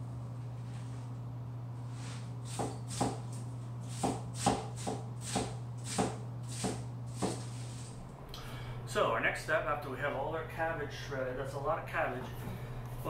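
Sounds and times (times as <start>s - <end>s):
steady low hum: 0.0s - 13.0s
knife chopping cabbage on board: 2.5s - 7.6s.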